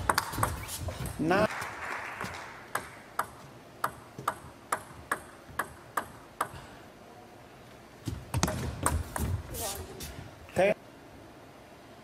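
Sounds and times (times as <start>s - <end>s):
table tennis ball clicks: 2.7s - 6.5s.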